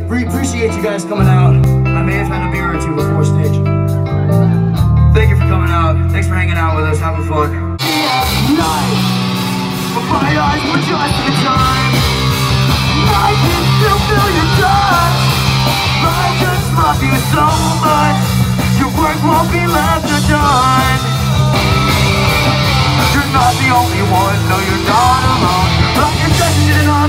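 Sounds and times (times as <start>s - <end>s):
live rock band playing: 0.0s - 27.0s
person singing: 7.8s - 12.2s, 12.9s - 27.0s.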